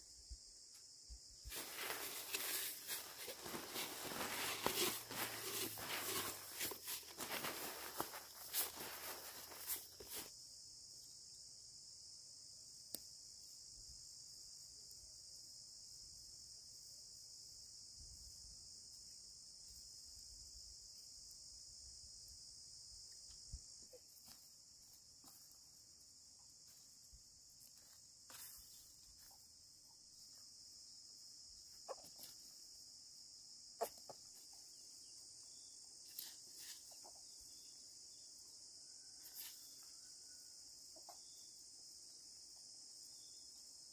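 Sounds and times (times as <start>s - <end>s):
high-pitched insect chorus: 0.0s - 43.9s
rice seed pouring into sack: 1.5s - 10.2s.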